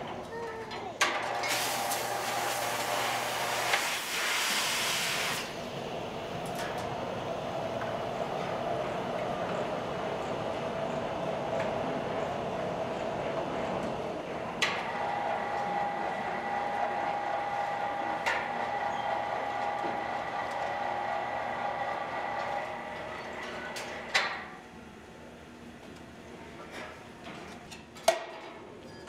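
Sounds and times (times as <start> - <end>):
foundry machinery noise: 0.0 - 29.0
hoist motor whine: 5.1 - 24.2.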